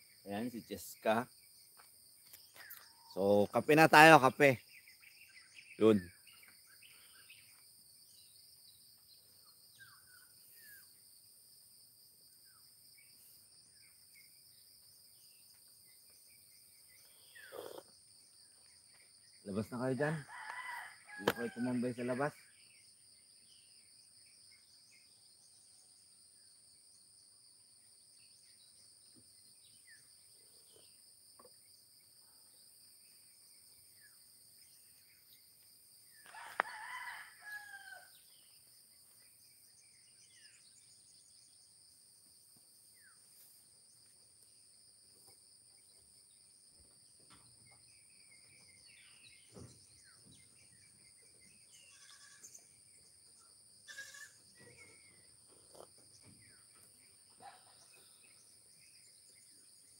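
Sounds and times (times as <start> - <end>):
bird chirps: 0.0 - 11.1, 12.3 - 20.2, 45.2 - 59.9
insect drone: 0.0 - 59.9
rooster crowing: 20.2 - 21.8, 36.2 - 38.2.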